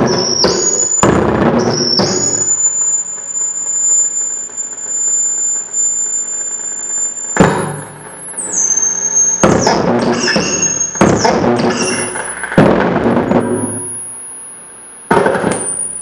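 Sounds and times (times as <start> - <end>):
high-pitched electronic whine: 0.0 - 16.0
sharp electronic burst: 0.0 - 16.0.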